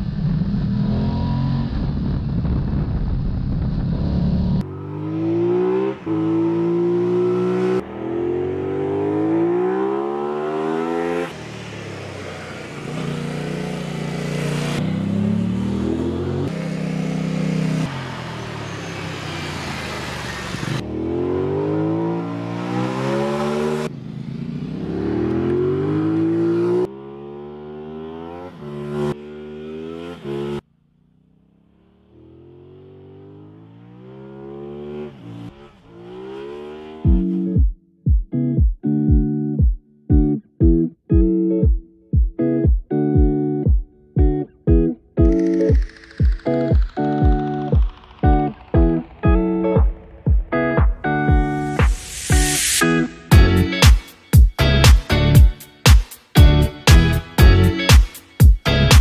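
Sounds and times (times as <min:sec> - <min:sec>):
motorcycle engine revving: 0:00.0 - 0:02.4, 0:03.3 - 0:37.6.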